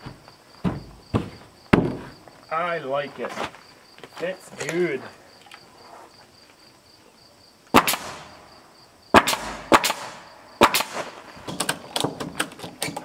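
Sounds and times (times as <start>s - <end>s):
nail gun firing into wood: 7.8s - 8.3s, 9.1s - 13.0s.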